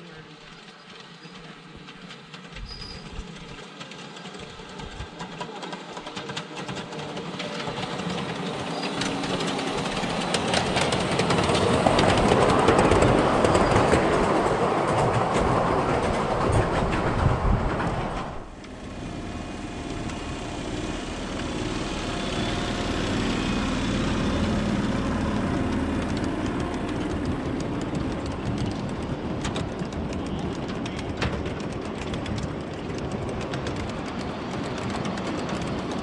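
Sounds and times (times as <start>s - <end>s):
miniature train rolling past: 0.0s - 36.0s
wheels clicking over rail joints: 0.0s - 36.0s.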